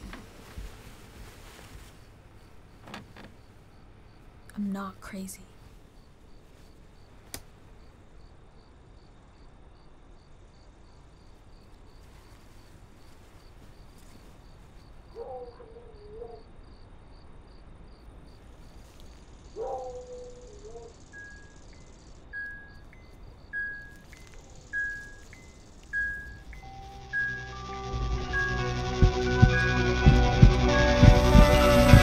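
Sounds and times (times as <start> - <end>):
crickets chirping: 0.0 - 32.0
low drawn-out sounds: 26.1 - 32.0.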